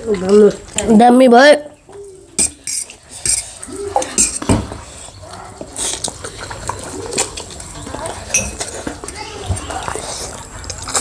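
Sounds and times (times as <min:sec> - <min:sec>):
forks clinking on metal plates: 0:02.4 - 0:04.5, 0:08.3 - 0:08.7.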